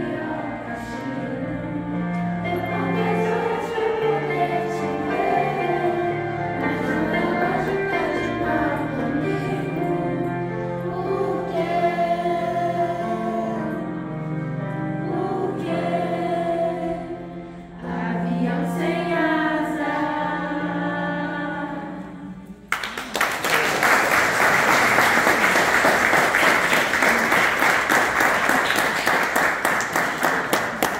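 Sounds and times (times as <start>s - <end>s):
children's choir singing: 0.0s - 22.7s
audience applauding: 22.7s - 30.9s.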